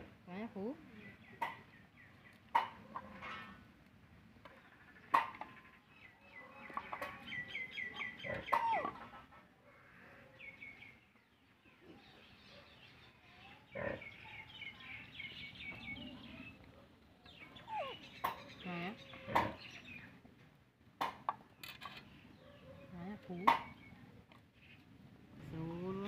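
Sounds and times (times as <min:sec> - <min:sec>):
chickens chirping: 0:05.0 - 0:09.5.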